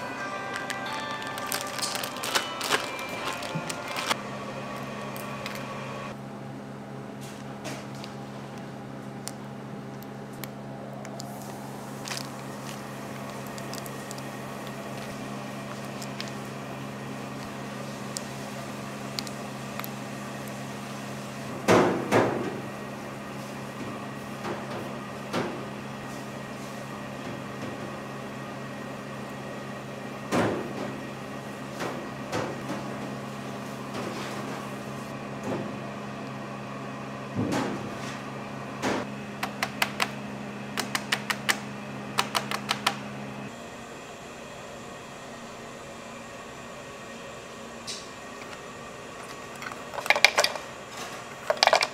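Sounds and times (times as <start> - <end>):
utensils and trays clattering: 0.0 - 4.2, 49.2 - 51.9
low appliance hum: 0.0 - 51.9.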